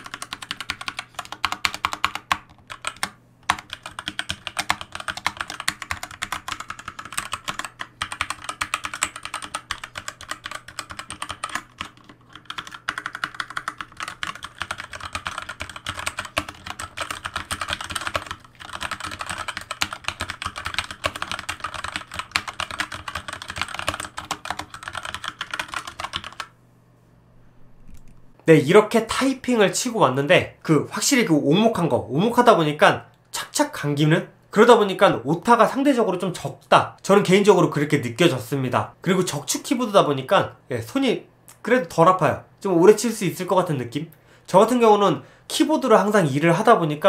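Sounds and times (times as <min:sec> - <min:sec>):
mechanical keyboard typing: 0:00.0 - 0:26.5.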